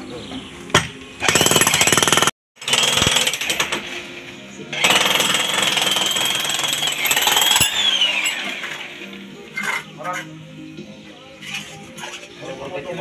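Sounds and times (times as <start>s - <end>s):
electric demolition hammer: 1.2s - 4.1s, 4.7s - 9.0s.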